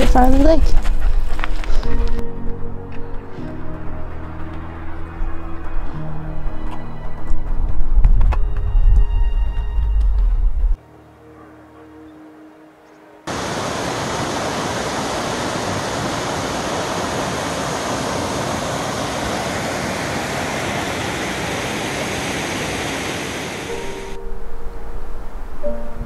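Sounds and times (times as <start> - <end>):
water rushing over boulders: 13.3 - 24.1.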